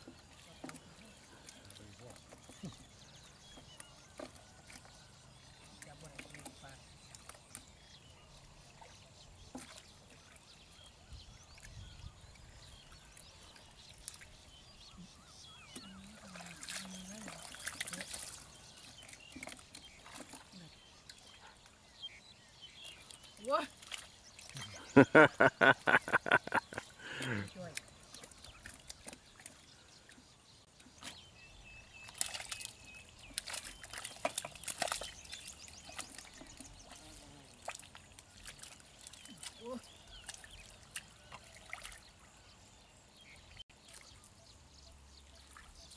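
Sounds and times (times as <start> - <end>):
hands splashing in muddy water: 32.0 - 42.1.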